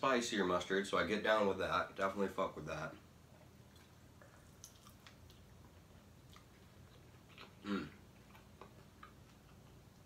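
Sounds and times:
person chewing: 3.3 - 10.0.

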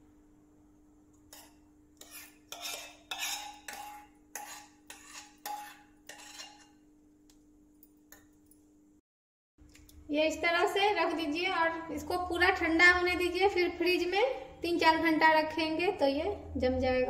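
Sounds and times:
metal spoon scraping steel pan: 1.3 - 6.8.

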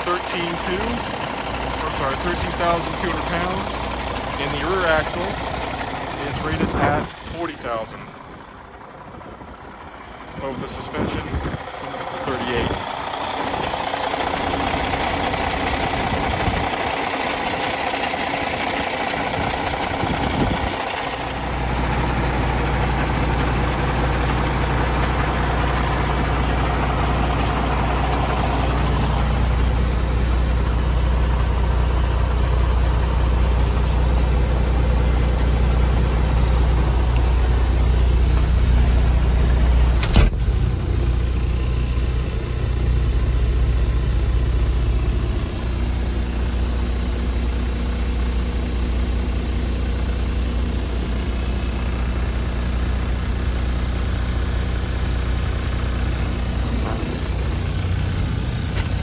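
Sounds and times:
diesel engine idling: 0.0 - 59.0
deep low drone: 19.2 - 59.0.

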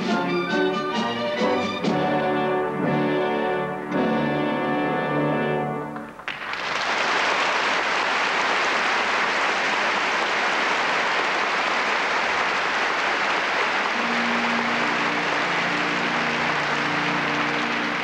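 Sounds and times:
orchestra playing softly: 0.0 - 6.3, 12.7 - 18.0
audience applauding: 6.0 - 18.0.

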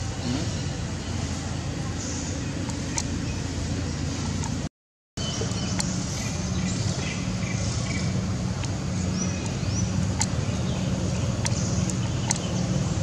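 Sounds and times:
low rumble of distant traffic: 0.0 - 13.0
birds chirping and whistling: 5.2 - 13.0.

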